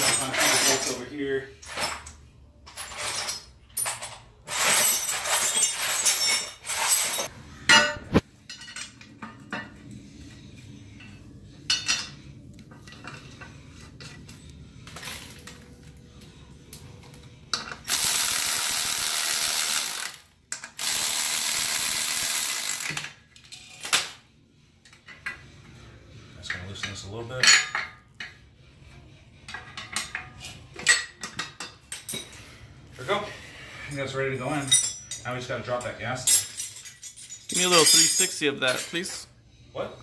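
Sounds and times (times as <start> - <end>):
bolts and tools clinking: 0.0 - 9.9, 26.5 - 28.4, 29.4 - 32.4, 34.5 - 39.3.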